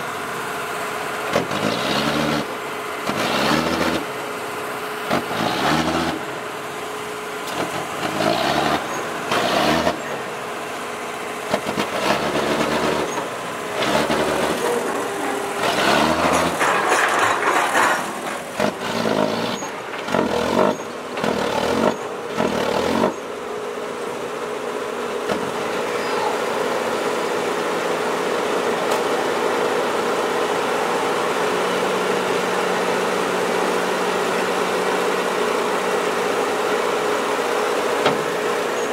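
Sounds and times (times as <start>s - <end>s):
diesel truck engine revving: 1.0s - 23.9s.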